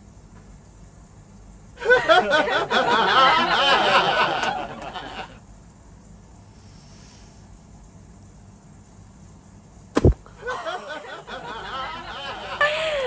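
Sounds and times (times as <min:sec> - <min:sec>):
choppy laughter: 0:01.8 - 0:05.4, 0:10.4 - 0:13.0.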